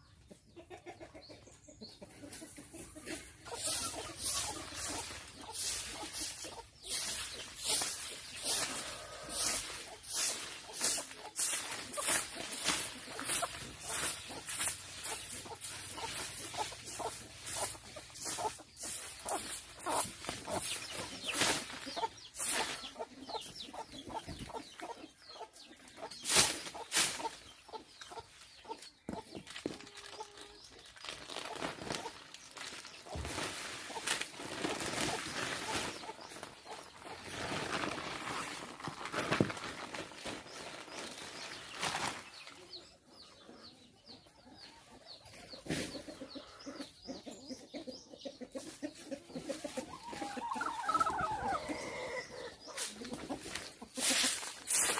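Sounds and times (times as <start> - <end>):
chickens clucking: 0.0 - 54.9
broom sweeping dirt: 2.5 - 24.6, 26.0 - 27.8, 32.8 - 39.6, 52.7 - 54.9.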